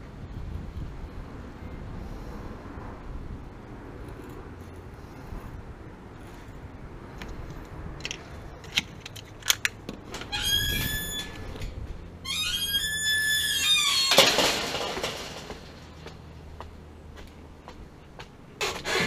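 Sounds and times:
gate clattering: 0:09.5 - 0:16.0
gate hinges squealing: 0:10.1 - 0:15.3.

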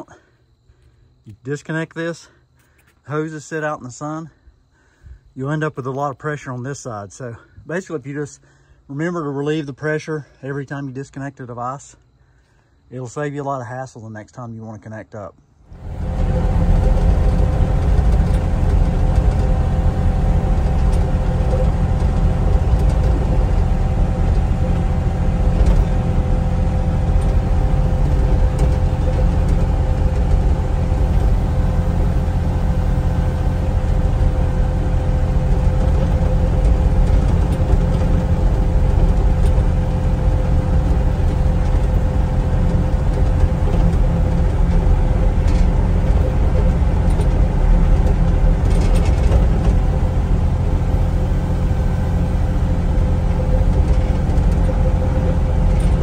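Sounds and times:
diesel engine droning: 0:15.7 - 0:56.0
steady whine: 0:15.7 - 0:56.0.

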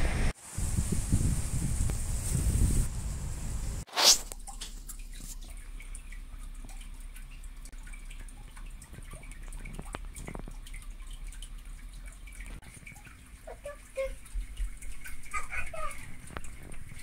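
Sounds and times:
faint small ticks and clicks: 0:04.3 - 0:17.0.

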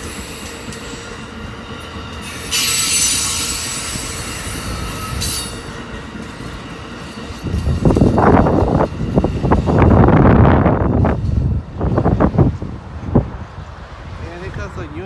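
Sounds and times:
high wheel squealing: 0:00.0 - 0:09.5
train cars rolling on rails: 0:00.0 - 0:15.0.

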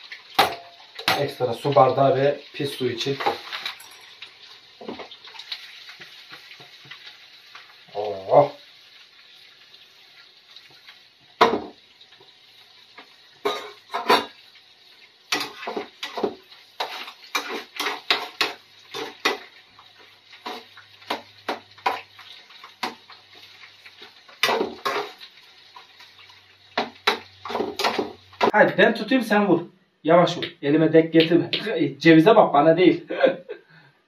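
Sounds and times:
eggs frying sizzle: 0:00.0 - 0:29.4
metal utensil scraping frying pan: 0:03.0 - 0:05.6, 0:13.4 - 0:14.4, 0:15.3 - 0:19.6, 0:24.0 - 0:25.9, 0:26.8 - 0:28.5.

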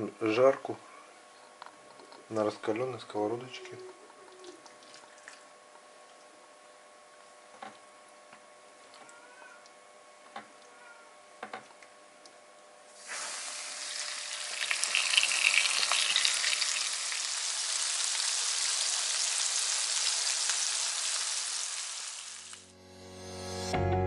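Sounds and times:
fish sizzling in hot oil: 0:13.0 - 0:22.7.

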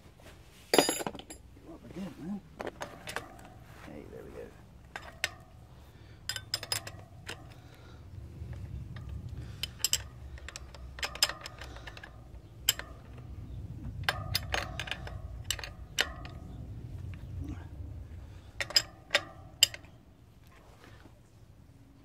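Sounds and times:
spanner clicking on metal nut: 0:04.9 - 0:05.6, 0:06.2 - 0:07.8, 0:08.4 - 0:17.2, 0:18.5 - 0:20.0.

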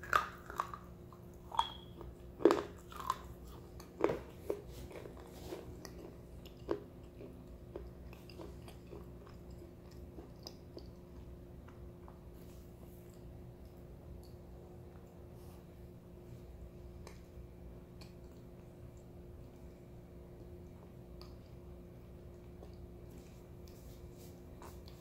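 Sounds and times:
crunching and chewing clay stick: 0:00.0 - 0:14.4.

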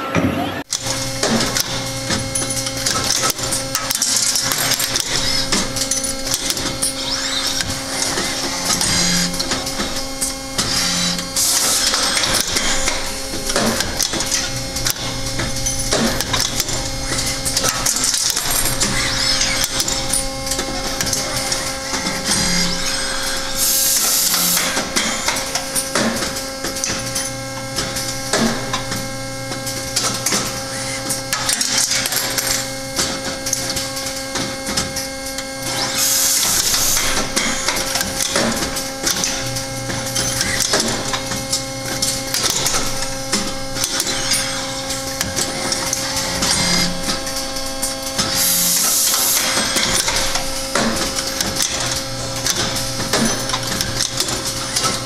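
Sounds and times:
robot servo hum: 0:00.3 - 0:25.8, 0:39.0 - 0:55.0
pneumatic clamps and valves clicking: 0:00.7 - 0:55.0.

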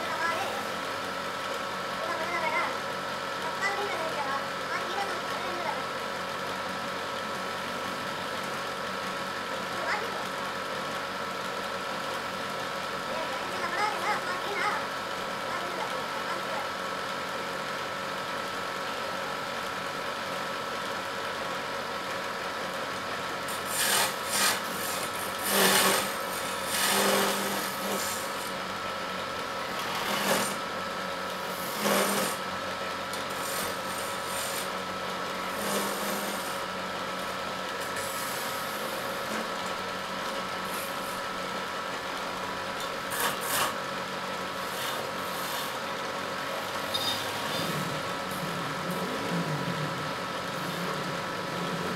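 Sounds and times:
wood lathe humming: 0:20.7 - 0:51.9
chisel scraping spinning wood: 0:23.4 - 0:28.6, 0:29.7 - 0:30.7, 0:31.5 - 0:32.4, 0:33.3 - 0:34.8, 0:35.4 - 0:36.7, 0:37.8 - 0:39.5, 0:43.1 - 0:43.8, 0:44.6 - 0:51.9.

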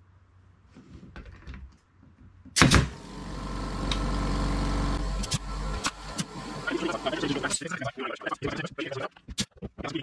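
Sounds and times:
nail gun firing into wood: 0:02.6 - 0:03.0
air compressor motor humming: 0:02.6 - 0:07.6.

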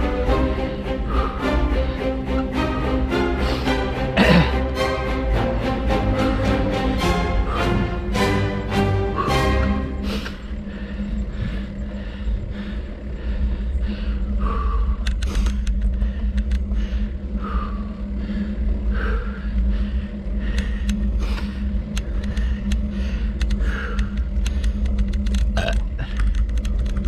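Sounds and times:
wind and road rumble: 0:09.8 - 0:27.0
sharp clicks and crackles: 0:14.9 - 0:17.0, 0:20.4 - 0:27.0.

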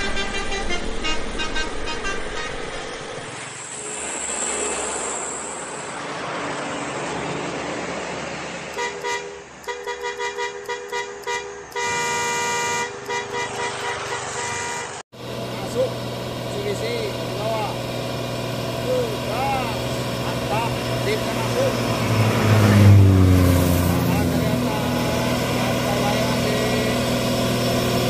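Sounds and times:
truck horn blasts: 0:00.0 - 0:02.8, 0:08.7 - 0:15.0, 0:20.3 - 0:28.0
trucks passing on road: 0:00.0 - 0:28.0.

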